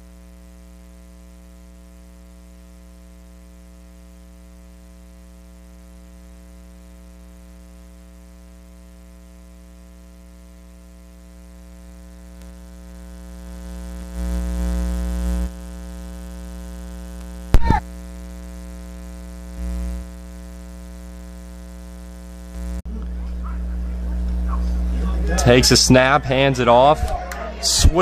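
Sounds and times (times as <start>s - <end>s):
electrical buzz: 0.0s - 27.0s
sharp loud pop: 17.6s - 17.8s.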